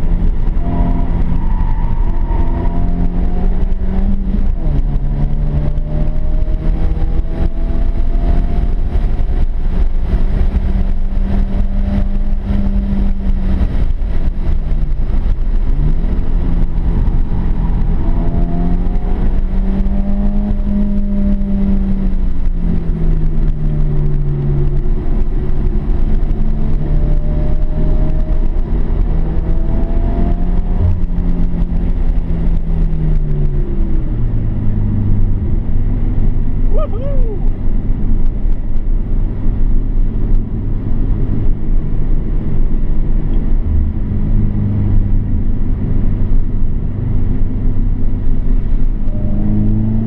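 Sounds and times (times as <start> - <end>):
car engine from inside cabin: 0.0 - 50.0
road and wind noise: 0.0 - 50.0.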